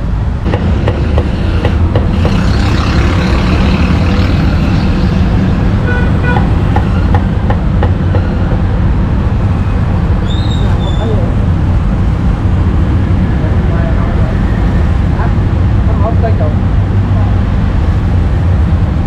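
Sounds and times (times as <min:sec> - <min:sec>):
road traffic rumble: 0:00.0 - 0:19.0
brief high squeal: 0:10.2 - 0:11.1.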